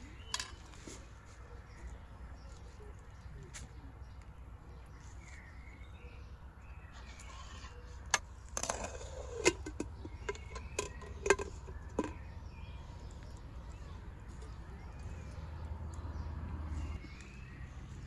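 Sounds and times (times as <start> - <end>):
low outdoor background: 0.0 - 18.0
pot and utensils clinking on metal: 8.6 - 12.3.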